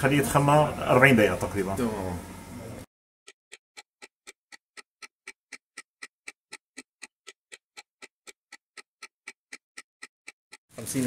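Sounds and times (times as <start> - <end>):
clock ticking: 3.3 - 10.8.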